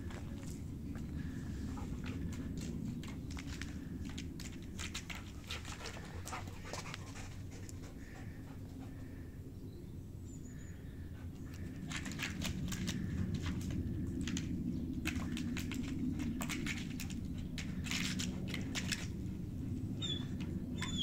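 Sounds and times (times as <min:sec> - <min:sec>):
claws scrabbling on bark: 0:00.0 - 0:08.2, 0:11.4 - 0:21.0
dog panting hard: 0:05.2 - 0:09.0.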